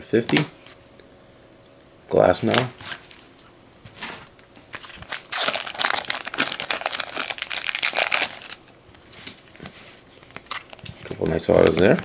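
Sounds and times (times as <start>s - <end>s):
card packaging crinkling: 4.4s - 9.5s, 10.2s - 12.0s.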